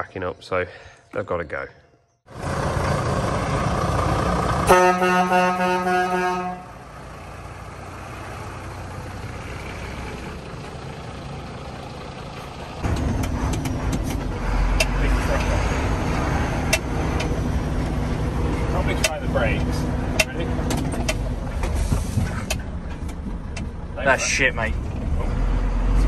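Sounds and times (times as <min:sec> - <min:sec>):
diesel lorry engine running: 0:02.3 - 0:26.0
loud truck horn blast: 0:04.6 - 0:06.8.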